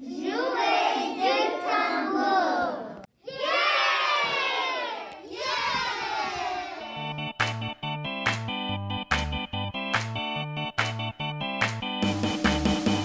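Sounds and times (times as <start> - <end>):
children cheering and shouting: 0.0 - 7.1
keyboard music: 6.8 - 13.0.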